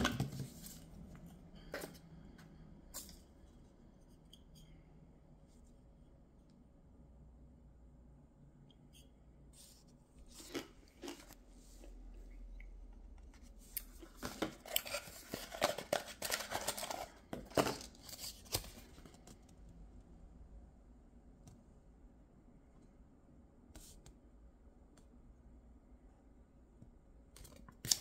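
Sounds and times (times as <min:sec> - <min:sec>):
paper crinkling and rustling: 0:13.3 - 0:19.4.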